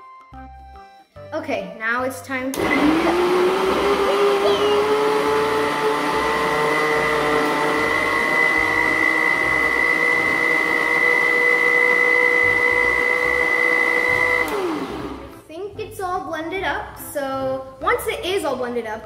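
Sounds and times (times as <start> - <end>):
electric blender motor whine: 2.6 - 15.3.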